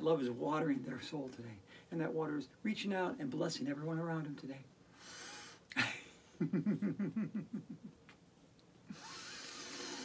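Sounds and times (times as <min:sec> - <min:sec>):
sharp breath: 0:04.9 - 0:05.7
woman laughing: 0:05.7 - 0:08.0.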